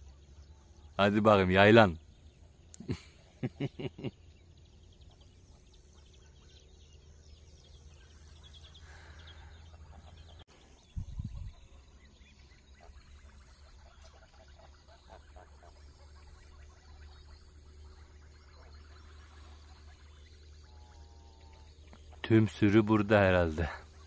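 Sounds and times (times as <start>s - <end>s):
small birds chirping: 0.0s - 24.0s
ducks quacking: 8.0s - 10.4s, 11.2s - 24.0s.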